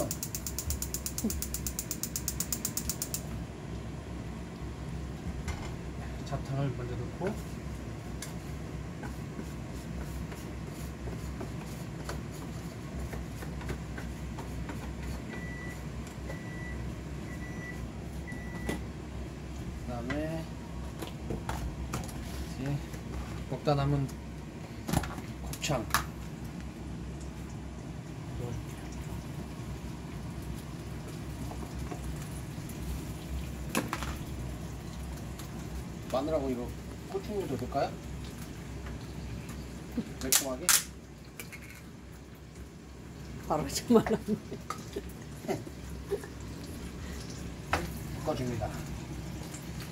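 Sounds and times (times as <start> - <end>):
food sizzling in a frying pan: 27.2 - 49.9.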